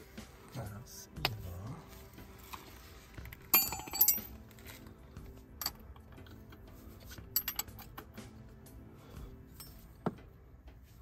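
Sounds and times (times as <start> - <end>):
metal wrench clinking: 3.5 - 4.4, 5.6 - 8.1.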